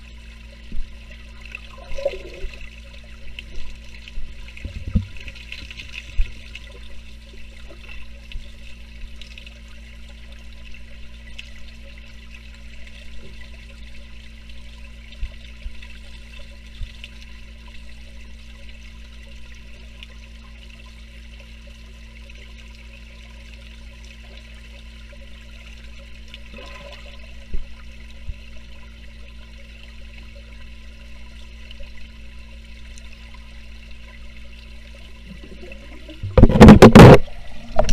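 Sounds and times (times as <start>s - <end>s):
underwater low hum: 0.0s - 37.9s
water knocks from kicking: 3.6s - 6.4s, 36.1s - 37.9s.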